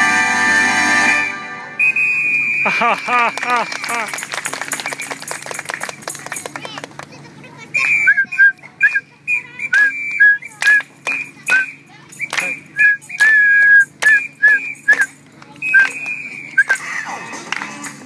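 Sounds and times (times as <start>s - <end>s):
whistling chirping notes: 1.8s - 2.7s, 7.8s - 16.8s.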